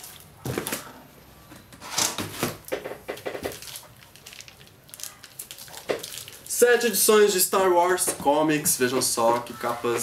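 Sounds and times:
plastic shrink wrap crinkling: 2.7 - 10.0.

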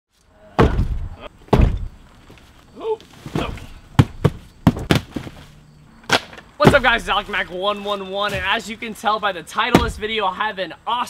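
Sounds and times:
boxes thudding down: 0.6 - 2.0, 3.1 - 8.8, 9.7 - 10.2.

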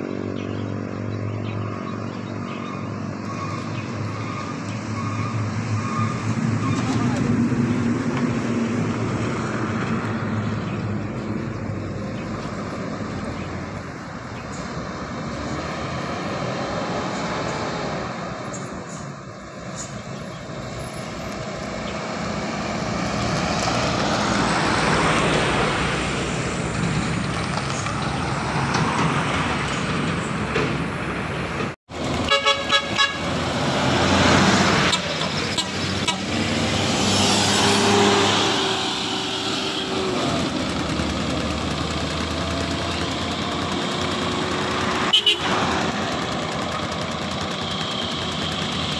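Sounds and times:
buses and trucks driving past: 0.0 - 48.9
vehicle horn blasts: 32.2 - 33.4, 34.8 - 36.4, 45.0 - 45.7, 47.6 - 48.9.

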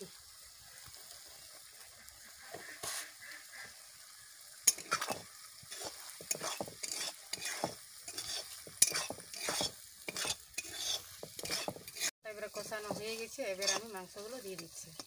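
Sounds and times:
faint sizzle of frying: 0.0 - 15.0
metal spatula scraping a pan: 4.6 - 15.0.

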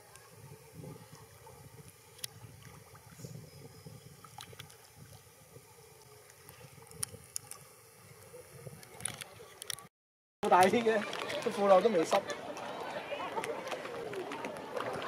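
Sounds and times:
wind rumbling on microphone: 0.0 - 5.8, 6.5 - 9.6
water lapping: 10.6 - 15.0.

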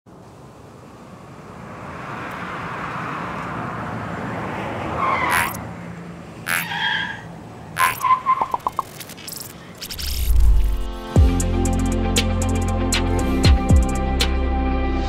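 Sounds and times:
traffic engine and road noise: 0.1 - 11.1
tire screech: 1.7 - 8.6.

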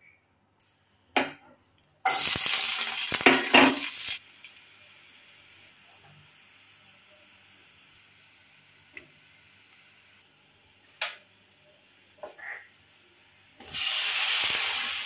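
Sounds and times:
food sizzling in hot oil: 2.0 - 12.0, 13.4 - 15.0
faint frying hiss: 2.0 - 15.0.

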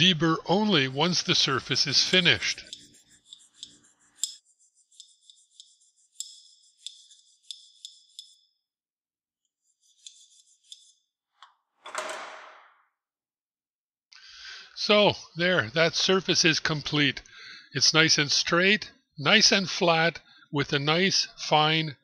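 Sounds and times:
hand file scraping steel: 0.0 - 8.5, 9.5 - 11.1.

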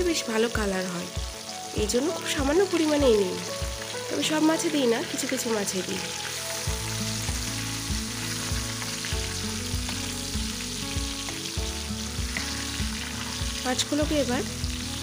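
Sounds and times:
fish sizzling in hot oil: 0.0 - 15.0
spatula turning fish in pan: 4.7 - 15.0.

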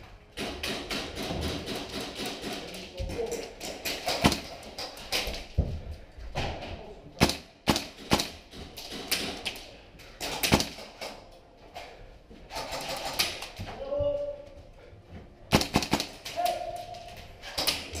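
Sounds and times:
airsoft gun shots: 15.5 - 16.2.

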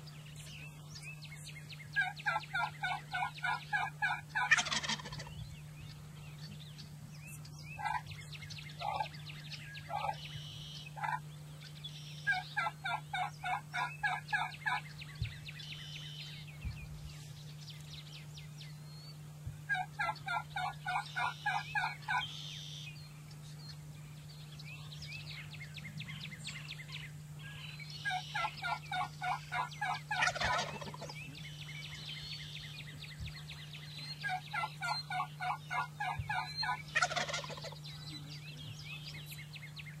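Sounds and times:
turkeys gobbling: 2.0 - 5.3, 7.8 - 8.1, 8.8 - 9.1, 9.9 - 11.2, 12.3 - 14.8, 19.7 - 22.8, 28.0 - 31.3, 34.2 - 37.8.

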